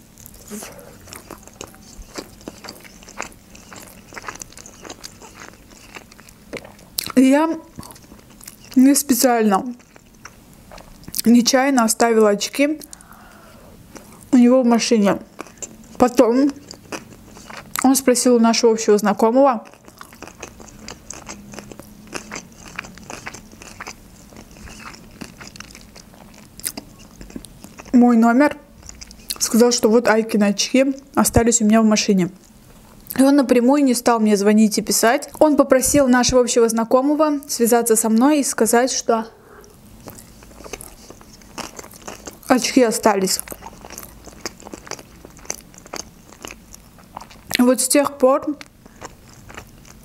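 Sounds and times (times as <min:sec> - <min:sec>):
chewing food: 0:00.2 - 0:11.4, 0:15.2 - 0:18.3, 0:19.2 - 0:28.0, 0:28.8 - 0:30.0, 0:39.6 - 0:50.0.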